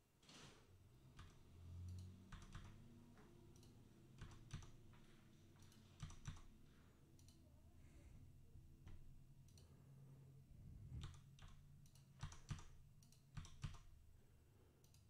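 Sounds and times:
computer keyboard typing: 0:01.1 - 0:02.9, 0:03.5 - 0:06.6, 0:11.0 - 0:14.0.

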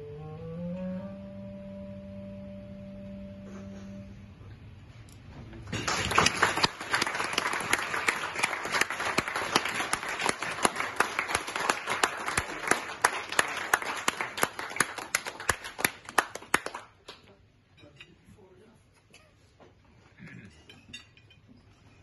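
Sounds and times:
people applauding: 0:05.7 - 0:17.3.

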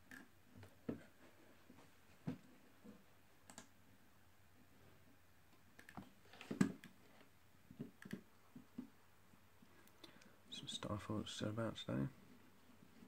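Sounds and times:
computer mouse and keys clicking: 0:03.4 - 0:03.8, 0:05.7 - 0:08.9.

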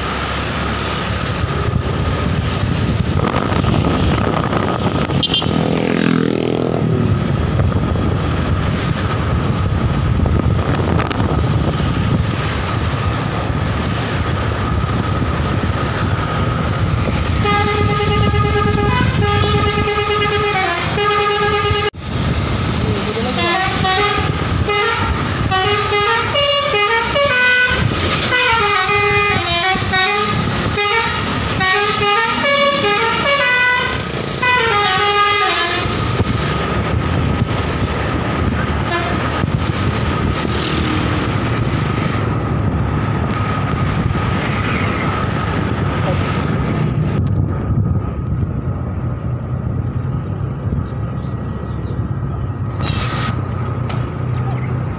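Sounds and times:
road and engine noise: 0:00.0 - 0:54.9
musical bus horn playing a tune: 0:05.2 - 0:05.6, 0:17.3 - 0:22.0, 0:23.4 - 0:36.2, 0:38.8 - 0:39.4.

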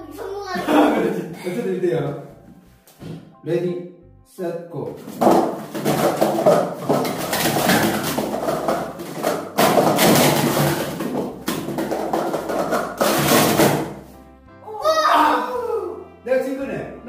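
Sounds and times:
background music: 0:00.0 - 0:17.0
plastic cups clattering: 0:05.0 - 0:14.1.

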